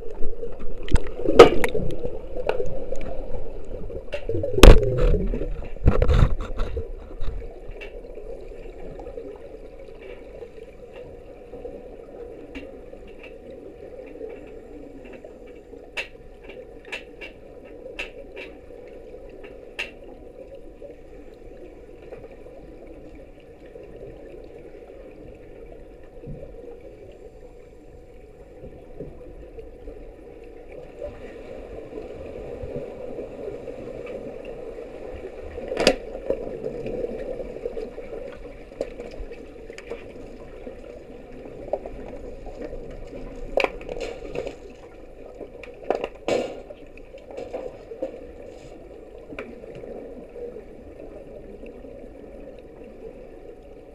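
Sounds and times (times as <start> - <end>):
sharp underwater clicks: 0.0 - 3.2, 4.0 - 8.1, 12.5 - 18.7
muffled underwater rumble of swimmers: 0.0 - 53.9.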